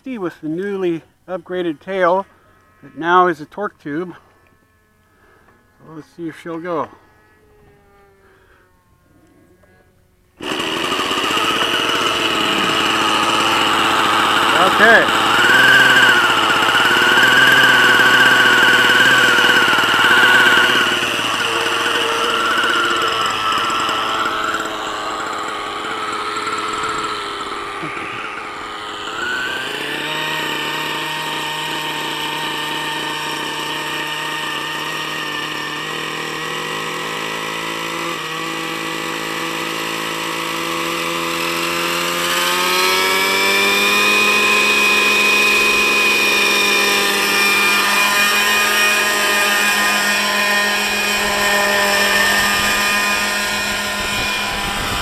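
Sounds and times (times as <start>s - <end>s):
model helicopter engine running: 10.4s - 55.0s.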